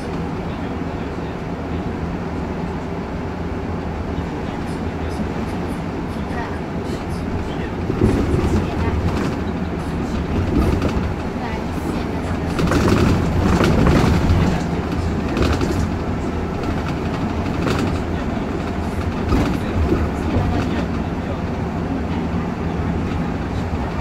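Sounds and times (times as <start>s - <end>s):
bus engine and tyre drone: 0.0s - 24.0s
rattles and knocks: 7.8s - 21.1s.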